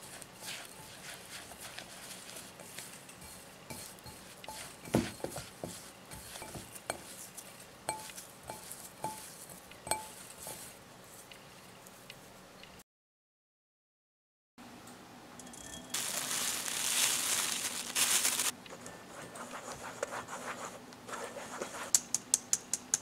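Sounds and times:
fingers rubbing crumble mixture: 0.0s - 11.4s
fingers clinking on glass bowl: 7.9s - 10.2s.

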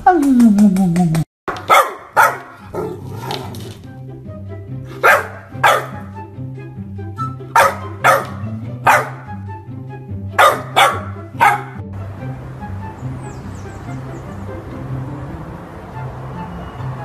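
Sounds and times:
background music: 0.0s - 17.0s
puppy barking: 1.5s - 3.6s, 4.9s - 6.2s, 7.5s - 9.4s, 10.4s - 11.8s.

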